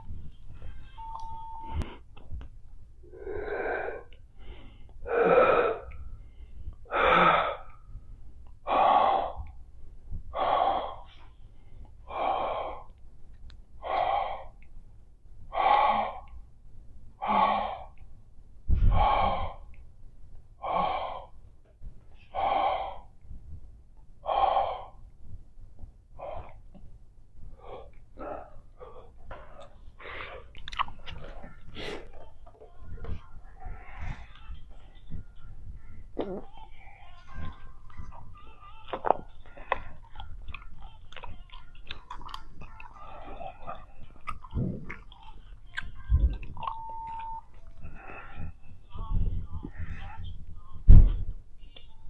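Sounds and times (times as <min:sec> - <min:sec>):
woman breathing heavily: 0:03.0 - 0:13.0, 0:18.7 - 0:19.8, 0:20.6 - 0:23.2, 0:24.2 - 0:25.1, 0:26.1 - 0:26.8, 0:27.4 - 0:41.2, 0:47.5 - 0:51.4.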